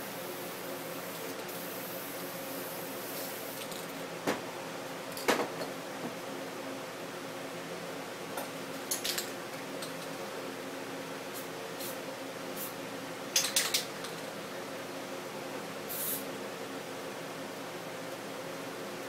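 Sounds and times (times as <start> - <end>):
spray paint can hissing: 2.9 - 3.6, 15.9 - 16.2.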